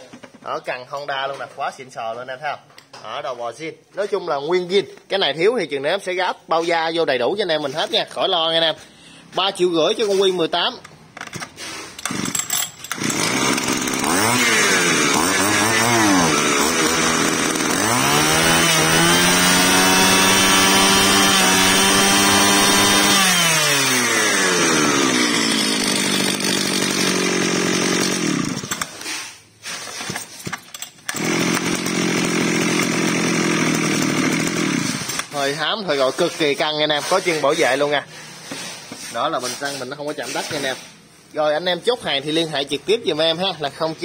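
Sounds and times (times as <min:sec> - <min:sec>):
brush cutter engine revving: 0:11.6 - 0:29.2, 0:31.0 - 0:35.8.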